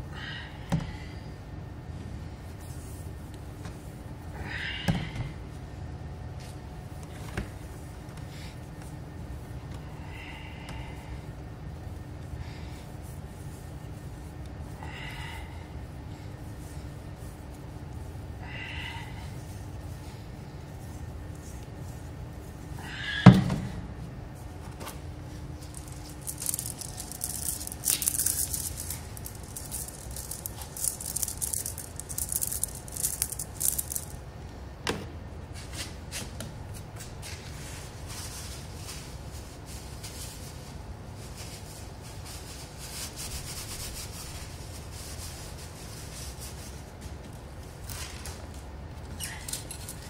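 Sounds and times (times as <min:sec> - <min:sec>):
low steady hum: 0:00.0 - 0:50.0
scratchy rubbing and rattling: 0:25.6 - 0:34.2.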